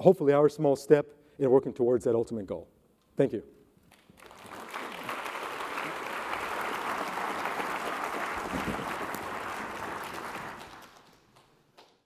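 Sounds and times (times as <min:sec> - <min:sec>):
audience applauding: 0:03.9 - 0:12.0.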